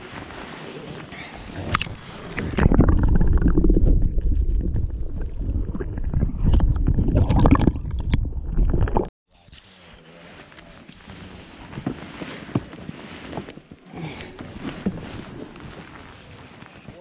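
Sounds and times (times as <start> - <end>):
bubbles: 1.6 - 9.1
underwater rumbling and gurgling: 1.6 - 9.1.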